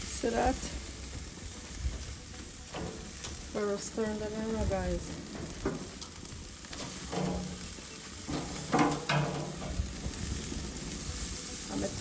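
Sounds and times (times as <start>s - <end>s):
chicken sizzling on a grill: 0.0s - 12.0s.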